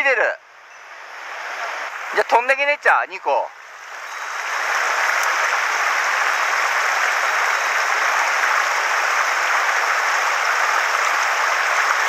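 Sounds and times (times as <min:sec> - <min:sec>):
stream rushing over stones: 0:03.6 - 0:12.0.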